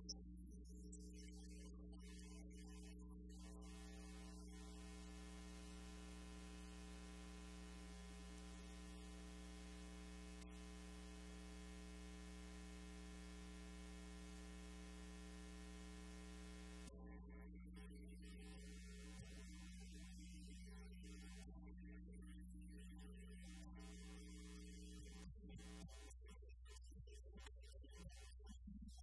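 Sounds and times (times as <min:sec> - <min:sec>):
electrical mains hum: 0:00.0 - 0:21.0.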